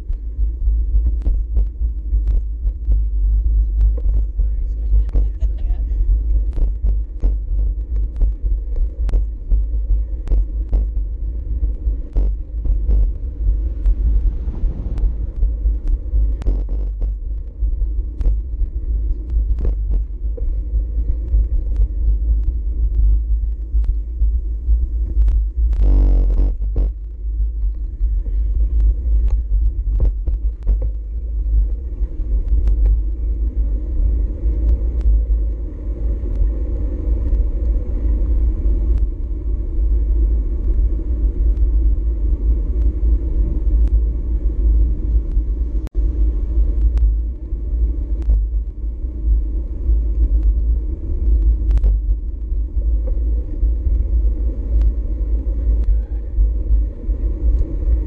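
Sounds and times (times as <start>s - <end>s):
road and tyre noise: 0.0s - 58.0s
wind buffeting microphone: 0.0s - 58.0s
small clicks: 6.2s - 9.4s, 51.2s - 54.1s.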